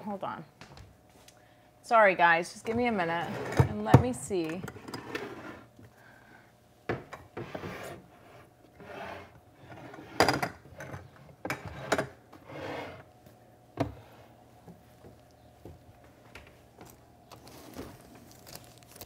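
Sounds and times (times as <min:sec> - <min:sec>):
brushing and sliding sounds: 0:07.4 - 0:10.2, 0:11.8 - 0:13.1.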